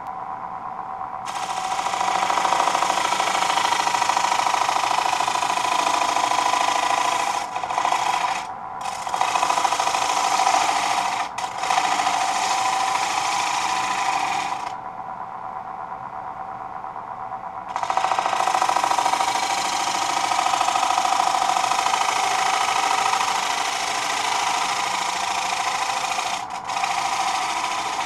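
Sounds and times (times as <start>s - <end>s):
lathe running: 1.3s - 14.8s, 17.7s - 28.0s
gouge cutting wood on lathe: 5.6s - 14.7s, 21.8s - 28.0s.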